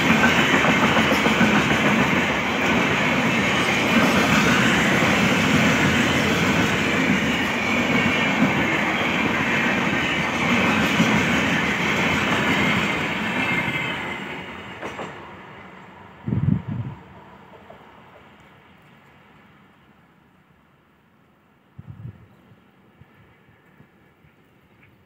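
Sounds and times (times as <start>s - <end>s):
train wheels clattering on rails: 0.0s - 15.9s.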